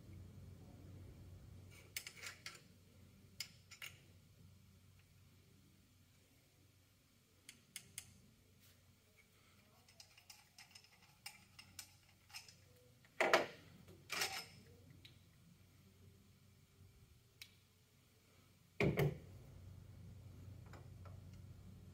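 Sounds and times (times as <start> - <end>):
metal engine parts clicking: 9.8 - 12.7.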